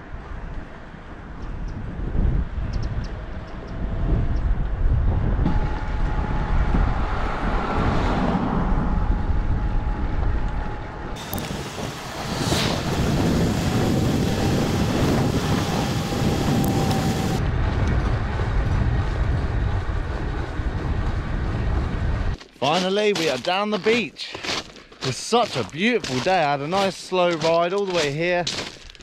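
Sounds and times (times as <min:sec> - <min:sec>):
wind buffeting microphone: 0:00.0 - 0:22.4
bicycle tyres rolling on tarmac: 0:00.1 - 0:29.0
faint steady whine: 0:05.0 - 0:07.6, 0:08.5 - 0:17.4.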